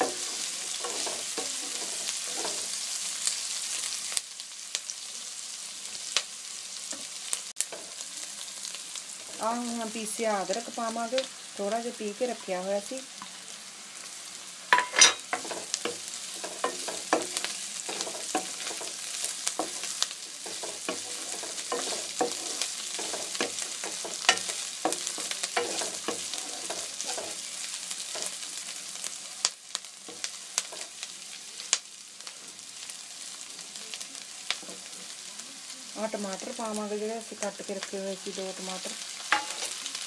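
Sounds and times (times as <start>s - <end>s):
wooden spatula scraping a pan: 0.0s - 2.8s, 14.8s - 28.4s
onions sizzling in hot oil: 0.0s - 40.0s.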